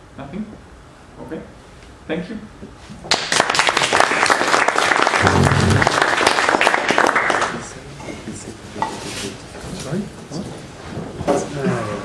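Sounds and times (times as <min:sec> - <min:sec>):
audience applauding: 0:03.1 - 0:07.7.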